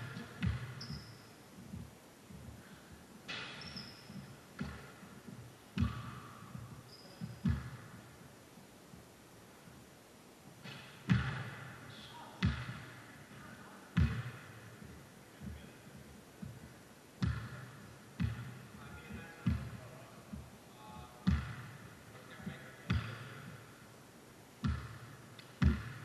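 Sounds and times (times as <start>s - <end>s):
basketball bouncing on gym floor: 0.0s - 2.6s, 3.3s - 8.2s, 10.6s - 11.8s, 12.4s - 13.2s, 14.0s - 15.6s, 17.2s - 18.8s, 19.4s - 20.5s, 21.2s - 22.0s, 22.9s - 23.6s, 24.6s - 26.0s.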